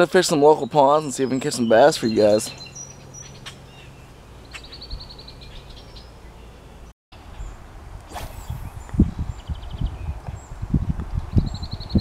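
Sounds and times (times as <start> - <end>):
outdoor background hiss: 0.0 - 11.2
bird trilling: 1.2 - 7.5.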